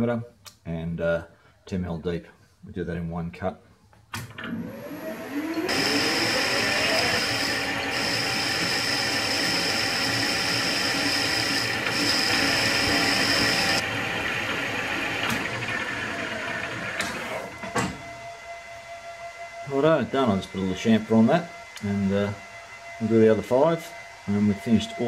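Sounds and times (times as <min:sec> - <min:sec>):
lathe motor whine: 0:04.4 - 0:25.0
metal boring cut ringing: 0:05.7 - 0:15.5.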